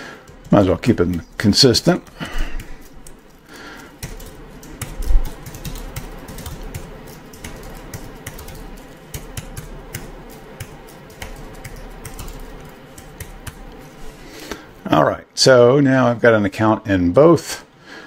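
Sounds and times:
keyboard typing: 0.2 - 14.0.

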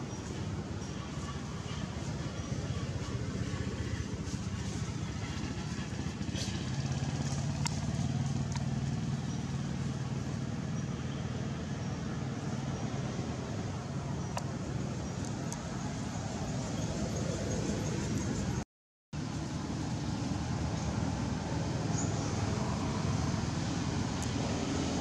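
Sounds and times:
faint sharp clicks: 7.3 - 7.8.

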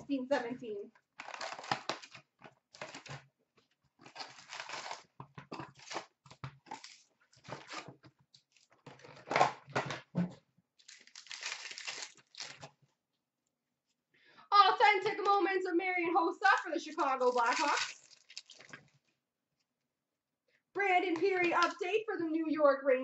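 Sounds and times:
cardboard rustling: 1.1 - 3.3, 4.0 - 10.0
cardboard box tearing: 1.2 - 3.2, 4.0 - 7.9
wrapper crinkling: 1.2 - 3.2, 4.0 - 7.8, 10.8 - 12.7, 16.5 - 18.8.

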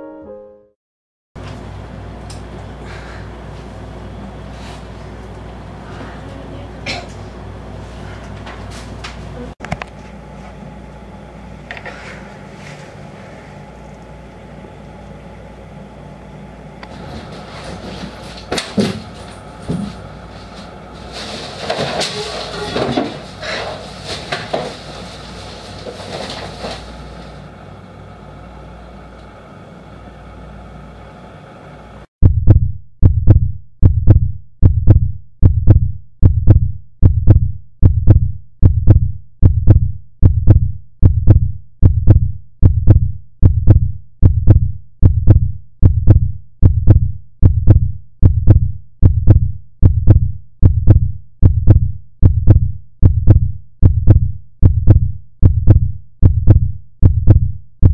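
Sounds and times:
heartbeat thumps: 32.2 - 57.9.

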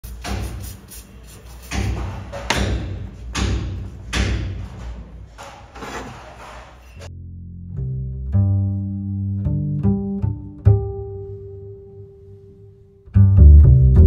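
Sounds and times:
heavy thumps: 1.6 - 6.8.

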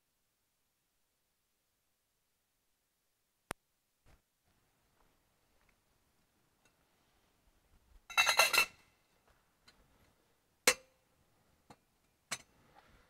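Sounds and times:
metal vessels clinking: 8.1 - 8.8.

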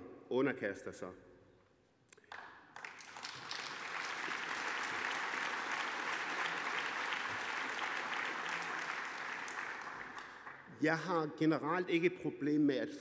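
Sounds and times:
audience applauding: 2.2 - 10.7.

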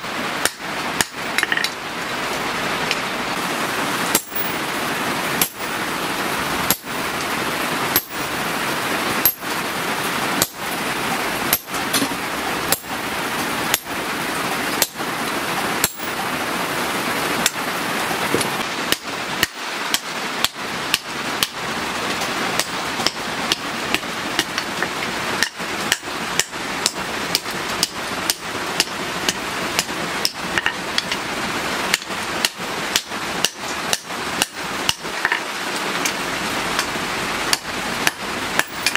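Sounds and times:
steady hiss: 0.0 - 38.9
hammer striking hot steel on anvil: 0.4 - 1.8, 4.1 - 4.6, 5.4 - 5.7, 6.7 - 7.0, 7.9 - 8.3, 9.2 - 9.5, 10.4 - 10.6, 11.5 - 12.1, 12.7 - 12.9, 13.7 - 13.9, 14.8 - 15.0, 15.8 - 16.2, 22.6 - 24.7, 25.4 - 31.2, 31.9 - 35.4, 37.5 - 38.9.

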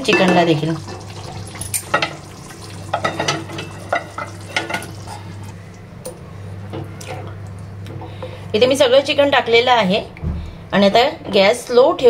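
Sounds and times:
light sizzle: 0.0 - 5.8.

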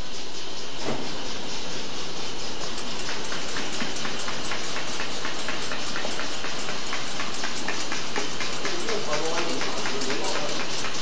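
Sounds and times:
machine running: 0.0 - 11.0
fast regular clicking: 2.4 - 11.0.

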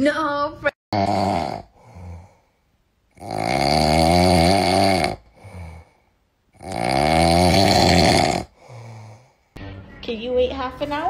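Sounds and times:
small dog snoring: 1.0 - 2.2, 3.2 - 5.9, 6.6 - 8.6.

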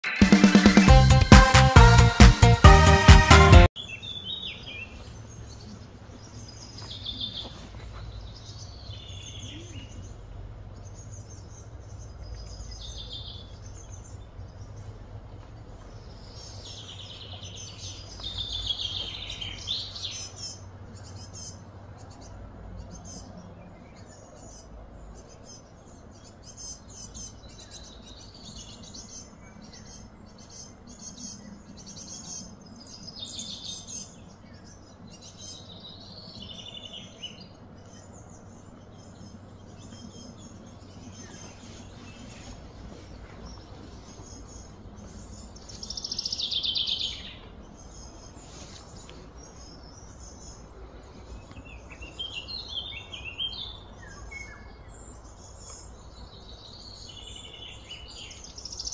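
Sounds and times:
sweeping falling bird calls: 0.0 - 58.9
birds chirping and calling: 3.8 - 58.9
steady low rumble: 9.5 - 19.7.

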